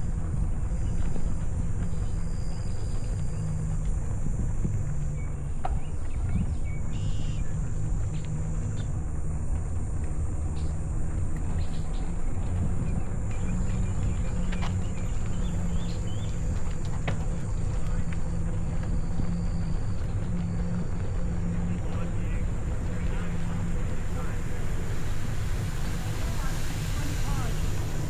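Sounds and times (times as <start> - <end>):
wind rumbling on microphone: 0.0 - 28.0
high-pitched insect drone: 21.8 - 28.0.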